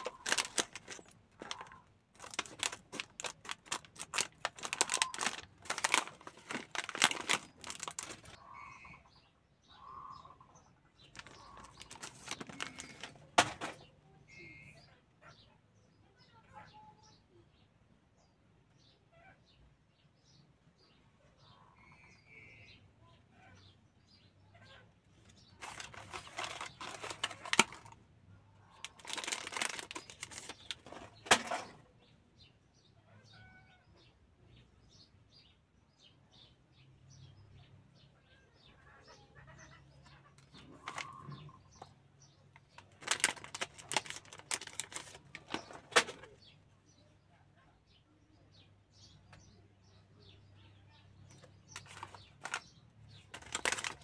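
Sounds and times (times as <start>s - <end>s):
cards rustling and scraping: 0.0s - 8.4s, 11.2s - 13.8s, 25.2s - 28.0s, 28.8s - 31.8s, 42.9s - 46.3s, 51.7s - 52.7s, 53.3s - 54.0s.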